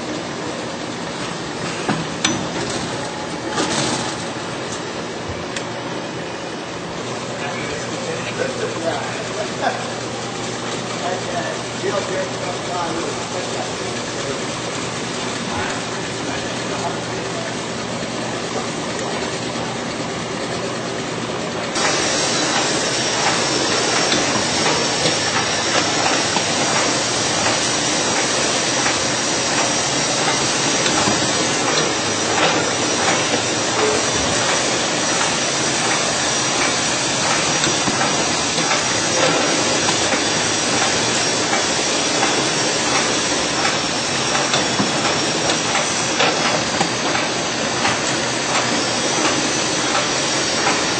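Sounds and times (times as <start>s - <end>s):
machine air hissing: 21.8s - 50.9s.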